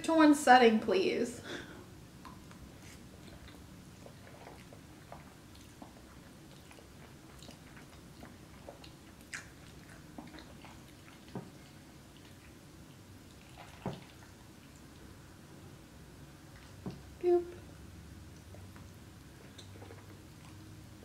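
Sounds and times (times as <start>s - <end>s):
person chewing food: 2.2s - 15.1s, 18.3s - 20.7s.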